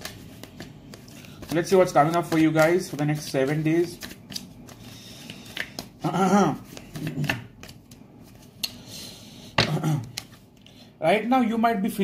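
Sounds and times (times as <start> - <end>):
cards being shuffled: 0.0 - 8.7, 10.0 - 10.5.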